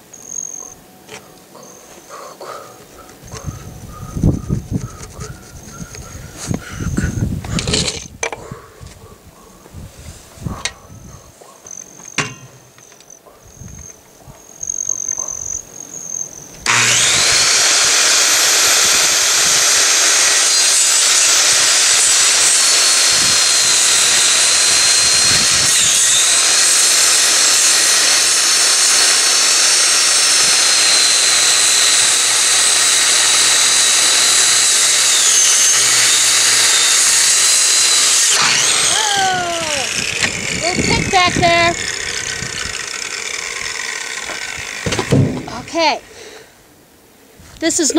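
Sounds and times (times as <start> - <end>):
circular saw cutting wood: 16.6 - 46.5.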